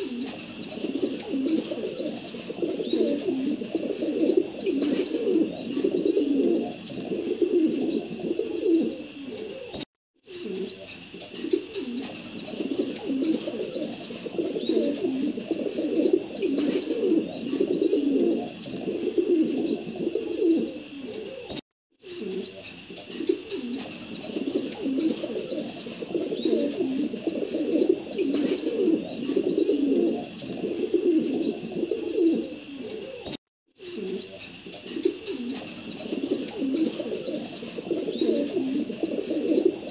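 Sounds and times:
pigeons cooing: 0.0s - 39.9s.

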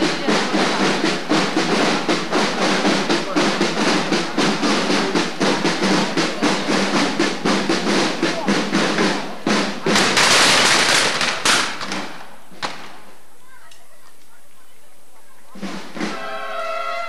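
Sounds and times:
procession drums beating a march: 0.0s - 13.1s, 15.3s - 17.0s
crowd voices: 0.0s - 17.0s
loud crackling burst: 9.1s - 13.1s
sharp crack: 9.9s - 13.0s.

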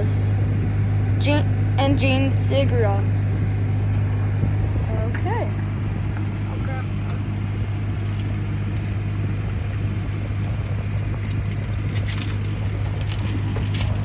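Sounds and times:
car engine humming: 0.0s - 14.0s
plastic wrapper crinkling: 8.0s - 14.0s.

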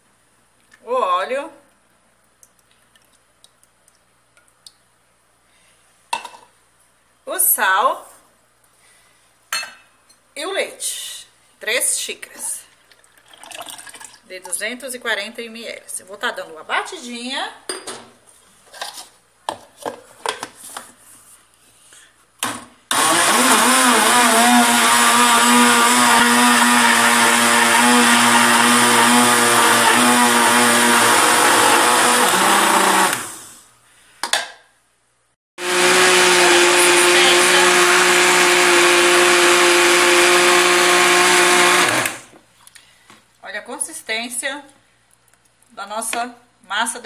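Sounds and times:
blender motor running: 22.9s - 33.6s, 35.6s - 42.3s.

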